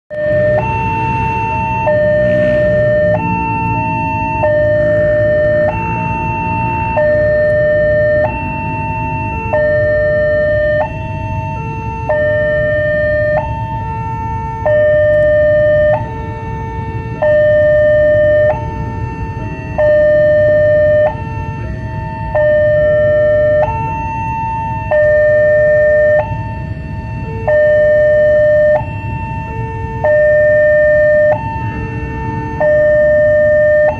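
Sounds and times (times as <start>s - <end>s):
steady low rumble: 0.1s - 33.9s
two-tone level crossing alarm: 0.1s - 33.9s.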